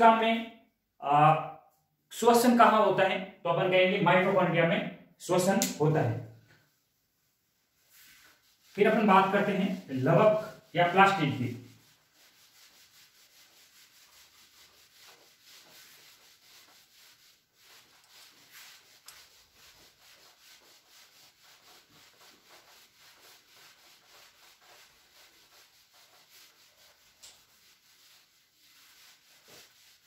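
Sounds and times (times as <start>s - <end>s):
eraser rubbing on whiteboard: 7.6s - 30.0s.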